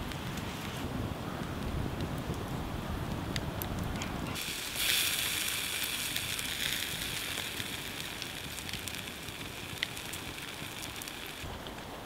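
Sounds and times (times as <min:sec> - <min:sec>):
campfire crackling and hissing: 0:00.0 - 0:12.0
sharp pops of fire: 0:03.1 - 0:11.9.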